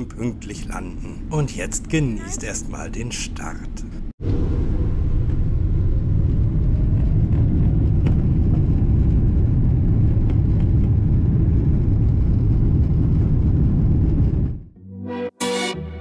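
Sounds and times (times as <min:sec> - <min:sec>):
jet engines low rumble: 0:03.3 - 0:14.8.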